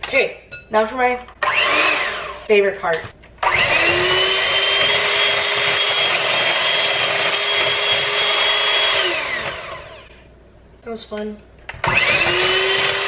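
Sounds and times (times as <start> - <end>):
electric hand mixer whirring: 1.4 - 2.5, 3.4 - 10.1, 11.8 - 13.0.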